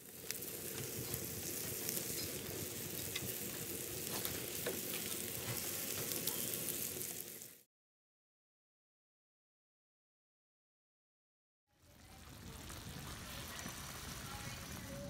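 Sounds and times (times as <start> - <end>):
mushrooms sizzling in a skillet: 0.0 - 7.7, 11.8 - 15.0
small pops and crackles: 0.1 - 7.6.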